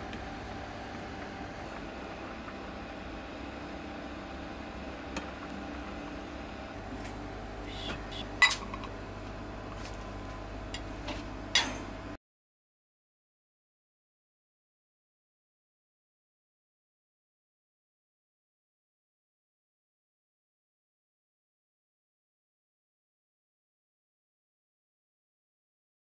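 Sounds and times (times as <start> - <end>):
steady low hum: 0.0 - 12.2.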